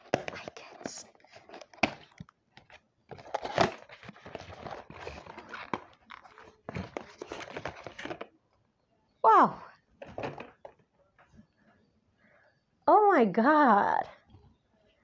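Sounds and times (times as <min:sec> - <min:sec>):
cardboard packaging rustling: 0:00.0 - 0:08.4.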